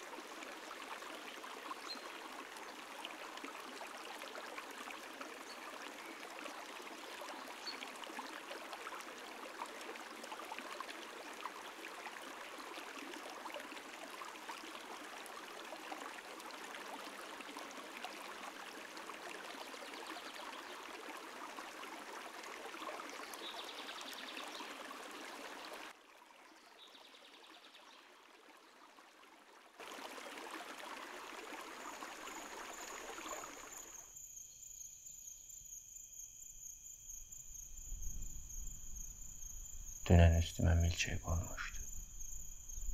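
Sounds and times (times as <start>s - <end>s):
stream flowing: 0.0s - 34.5s, 36.3s - 42.9s
crickets chirring: 31.7s - 42.9s.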